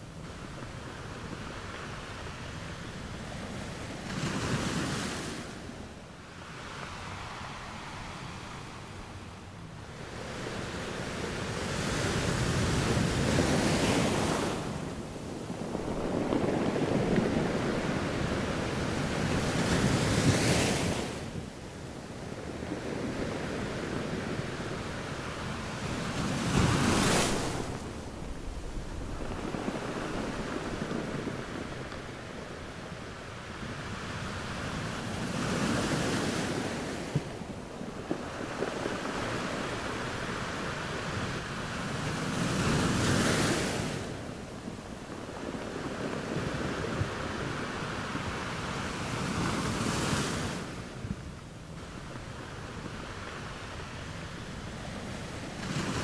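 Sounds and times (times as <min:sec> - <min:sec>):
small waves breaking on beach: 0:00.0 - 0:56.0
wave crashing: 0:24.7 - 0:50.9.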